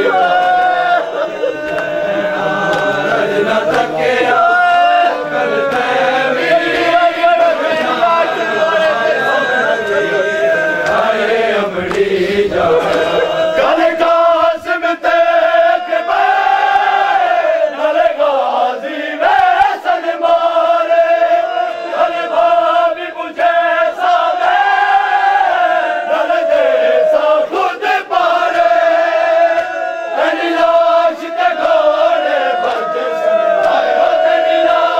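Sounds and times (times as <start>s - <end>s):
men chanting together: 0.0s - 34.9s
hands slapping chests: 2.7s - 4.4s, 10.8s - 11.1s, 12.8s - 13.3s, 29.5s - 29.8s, 32.6s - 33.0s.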